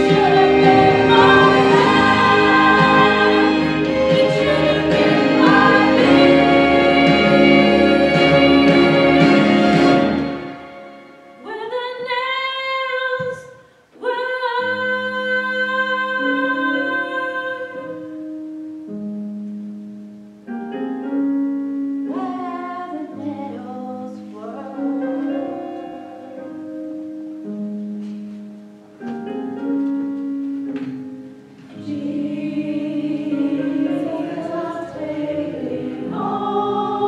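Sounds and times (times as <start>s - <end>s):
choir singing: 0.0s - 10.9s, 31.7s - 37.0s
quiet instrumental accompaniment: 15.2s - 37.0s.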